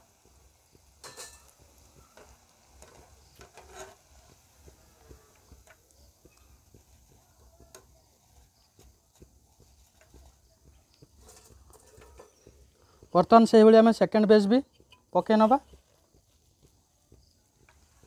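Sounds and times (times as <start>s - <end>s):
hot oil sizzling: 0.0s - 18.0s
strainer scraping against pan: 1.0s - 5.8s, 11.2s - 12.5s.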